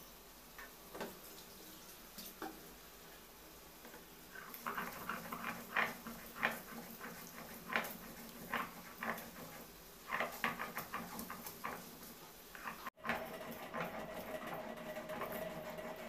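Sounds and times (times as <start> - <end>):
stone roller crushing shells: 4.6 - 16.0.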